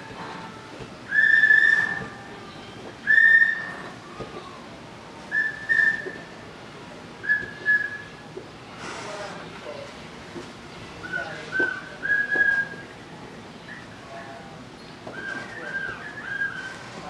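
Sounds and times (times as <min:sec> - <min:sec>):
person whistling short notes: 0:01.1 - 0:02.0, 0:03.1 - 0:03.7, 0:05.3 - 0:06.3, 0:07.2 - 0:08.1, 0:11.5 - 0:12.9.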